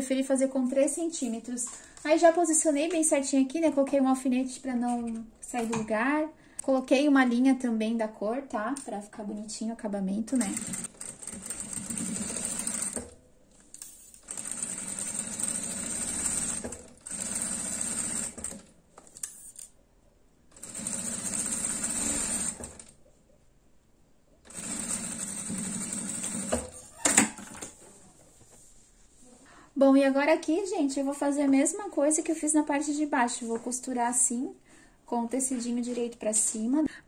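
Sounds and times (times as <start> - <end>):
sewing machine stitching: 10.4 - 13.1, 14.2 - 18.7, 20.6 - 22.9, 24.5 - 27.8.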